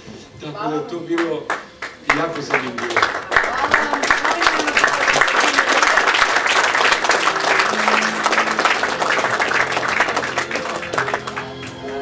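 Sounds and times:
audience applauding: 1.1s - 12.0s
instrumental music: 5.4s - 12.0s.

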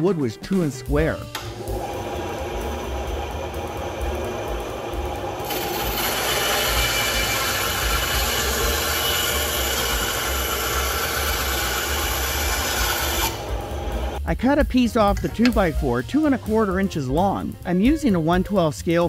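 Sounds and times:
bandsaw blade cutting wood: 1.3s - 14.2s
bandsaw motor low hum: 1.3s - 14.2s.

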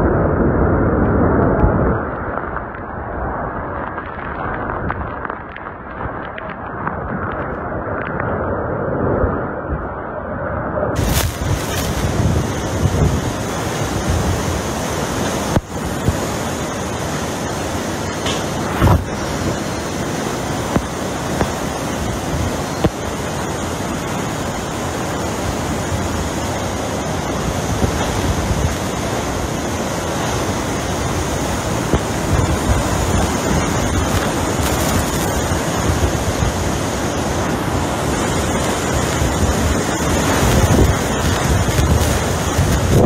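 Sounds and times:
hurricane wind and driving rain: 0.0s - 43.0s
wind buffeting microphone: 0.0s - 43.0s.

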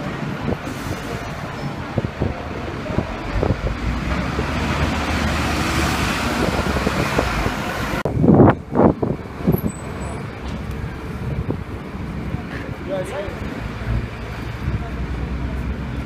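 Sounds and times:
bus driving away: 0.0s - 16.0s
street traffic noise: 0.0s - 16.0s.

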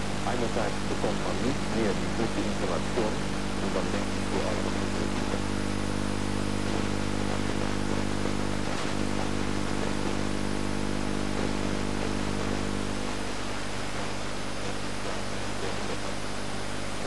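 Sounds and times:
low even buzz: 0.0s - 17.0s
steady static hiss: 0.0s - 17.0s.

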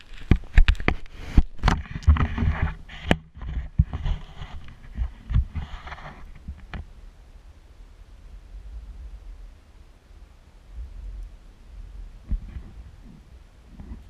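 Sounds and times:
rubbing and rustling on microphone: 0.0s - 7.0s, 10.7s - 14.0s.

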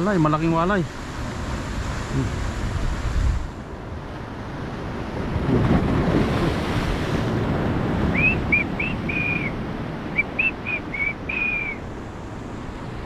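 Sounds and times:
surf washing on shore: 0.0s - 13.0s
wind on microphone: 0.8s - 13.0s
person whistling a tune: 8.1s - 9.5s, 10.2s - 11.8s.

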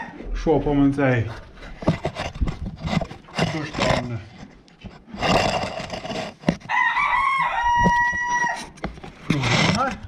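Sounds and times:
rustling and knocks: 1.3s - 6.7s
rooster crowing: 6.6s - 8.8s.

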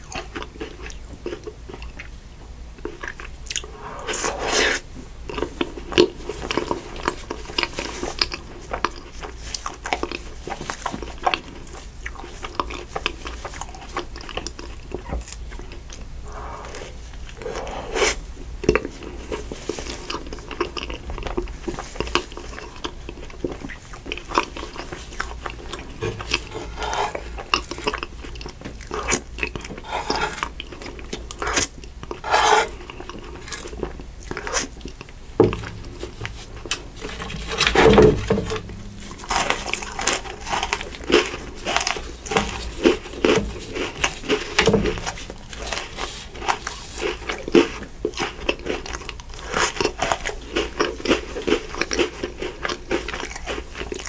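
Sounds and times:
crunchy biscuit sticks chewing: 0.0s - 2.1s, 2.8s - 16.1s, 16.8s - 54.0s.

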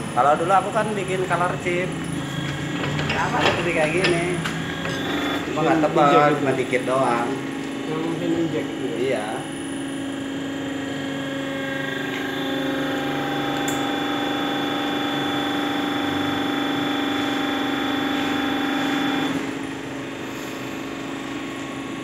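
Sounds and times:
hydraulic pump whining: 0.0s - 22.0s.

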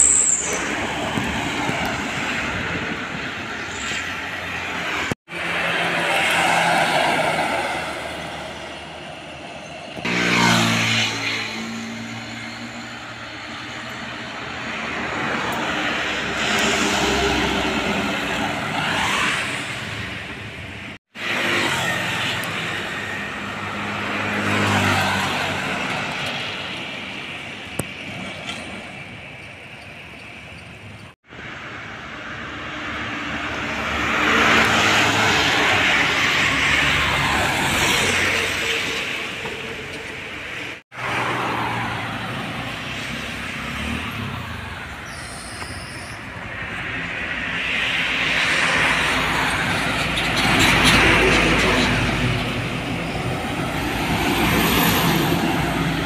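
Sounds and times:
trucks driving past: 0.0s - 56.0s.

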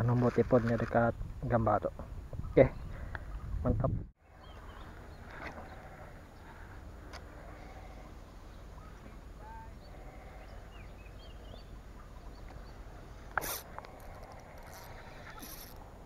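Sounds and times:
brief hiss: 13.4s - 13.7s.

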